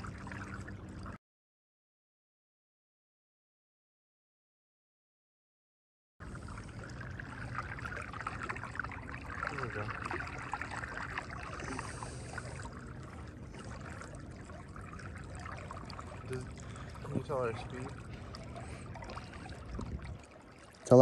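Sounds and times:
water lapping against canoe hull: 0.0s - 1.2s, 6.2s - 21.0s
water dripping: 6.2s - 21.0s.

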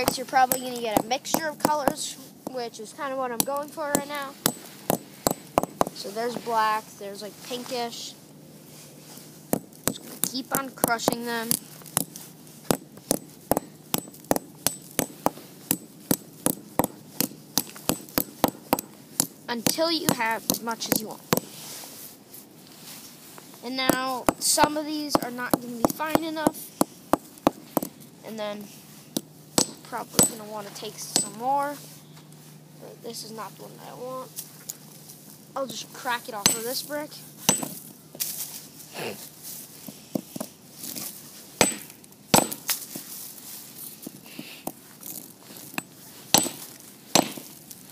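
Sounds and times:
hammer striking brick on wood: 3.9s - 6.0s, 12.7s - 19.8s, 29.6s - 30.4s, 37.5s - 37.8s, 41.6s - 42.7s, 45.8s - 47.5s
hammer knocking on brick: 37.5s - 37.8s.

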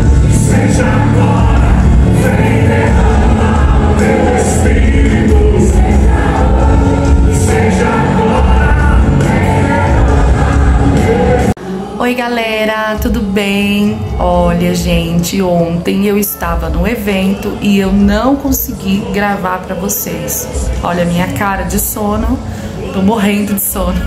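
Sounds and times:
worship music with singing: 0.0s - 24.0s.

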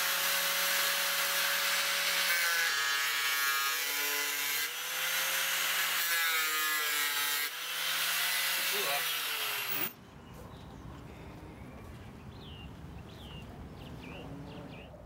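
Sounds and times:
angle grinder grinding metal: 0.0s - 10.0s.

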